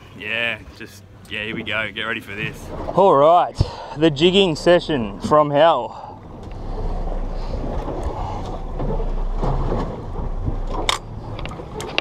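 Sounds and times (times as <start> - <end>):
water washing around boat hull: 0.0 - 12.0.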